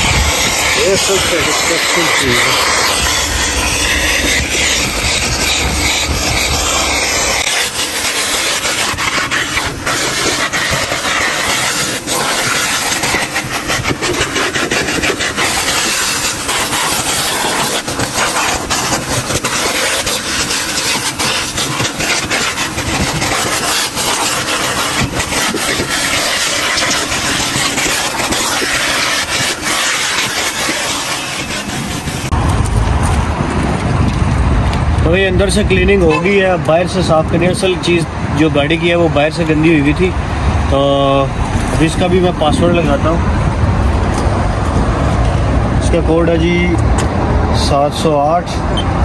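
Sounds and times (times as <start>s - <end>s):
grit rattling through hose: 0.0s - 32.7s.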